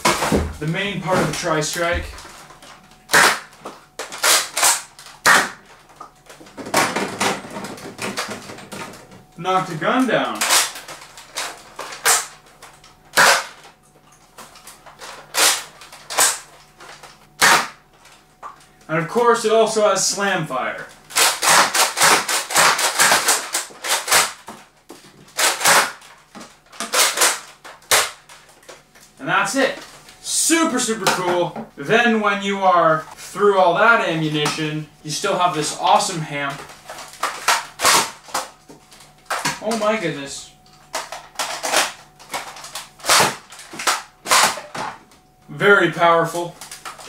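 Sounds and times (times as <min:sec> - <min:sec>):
toy blaster plastic snaps: 0:03.1 - 0:05.6, 0:10.4 - 0:12.4, 0:13.2 - 0:13.7, 0:15.3 - 0:16.5, 0:17.4 - 0:17.8, 0:21.1 - 0:24.6, 0:26.8 - 0:28.2.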